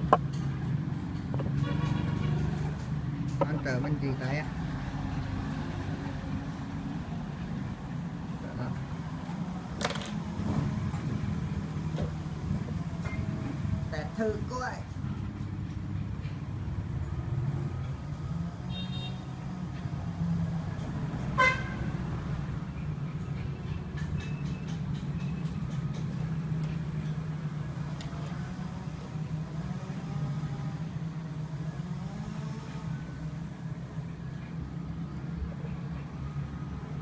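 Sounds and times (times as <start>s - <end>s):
street traffic rumble: 0.0s - 37.0s.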